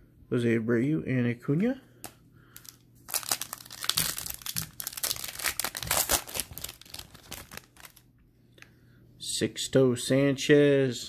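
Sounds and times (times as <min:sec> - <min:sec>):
plastic wrapper crinkling and tearing: 0:02.6 - 0:08.1.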